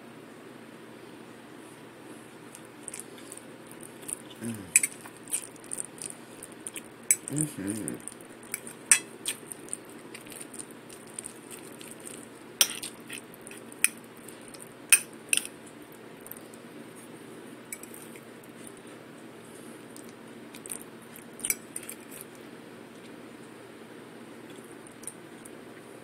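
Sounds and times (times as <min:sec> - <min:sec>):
fork clinking on plate: 0:08.5 - 0:09.1, 0:12.6 - 0:13.0.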